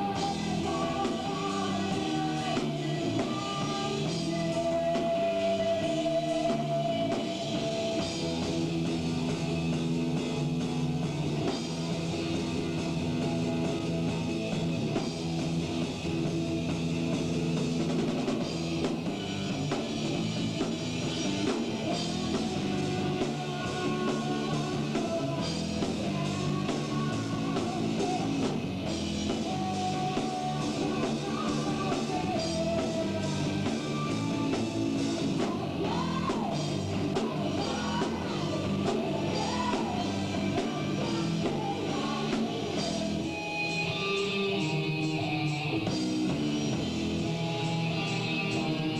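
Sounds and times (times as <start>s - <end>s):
person singing: 0.0s - 8.5s, 21.7s - 46.0s
rock band playing live: 0.0s - 48.9s.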